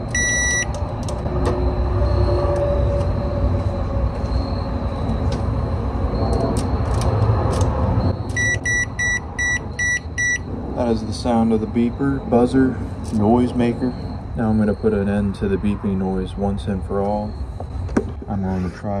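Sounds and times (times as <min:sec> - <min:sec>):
microwave beeps: 0:00.1 - 0:02.9, 0:08.0 - 0:10.5.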